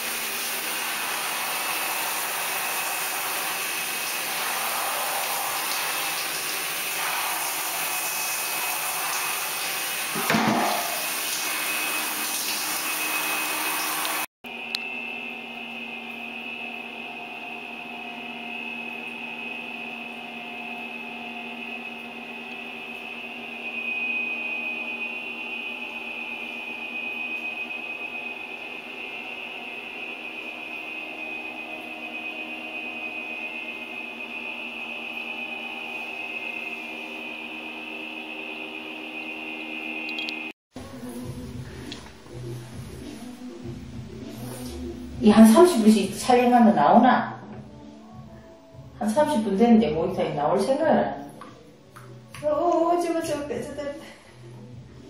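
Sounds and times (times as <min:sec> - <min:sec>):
water running into bathtub: 0:00.0 - 0:14.3
steady hum with high whine: 0:14.5 - 0:40.5.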